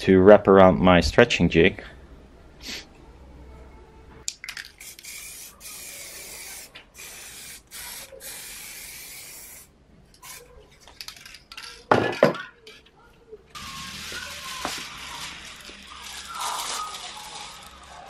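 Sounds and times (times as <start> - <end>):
aerosol spray can hissing: 4.8 - 10.4, 13.6 - 18.0.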